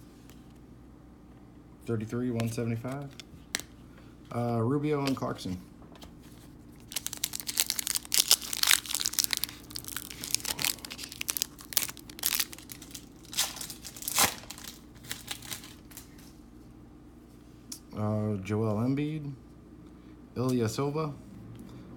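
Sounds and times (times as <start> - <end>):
plastic wrapper tearing and crinkling: 6.8 - 16.3.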